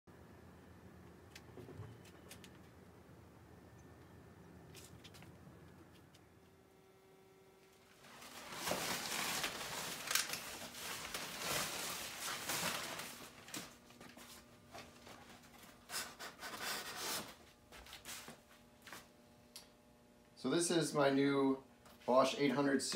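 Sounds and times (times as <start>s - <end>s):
plastic wrap crinkling: 7.8s - 15.2s.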